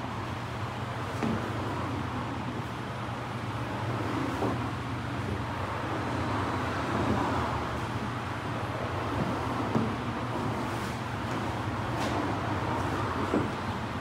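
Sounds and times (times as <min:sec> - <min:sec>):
road traffic hum: 0:00.0 - 0:14.0.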